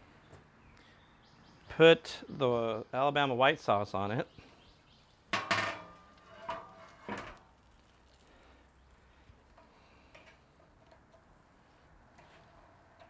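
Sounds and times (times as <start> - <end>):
steel lid clanking on barrel: 5.3 - 7.4.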